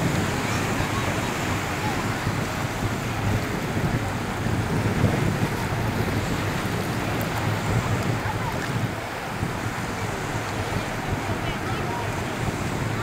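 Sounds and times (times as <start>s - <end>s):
choppy sea: 0.0s - 13.0s
wind buffeting microphone: 0.0s - 13.0s.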